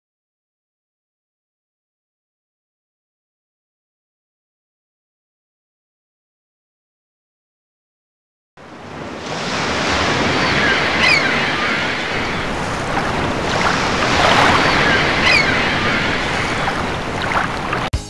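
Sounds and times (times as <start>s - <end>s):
water rushing: 8.6s - 18.0s.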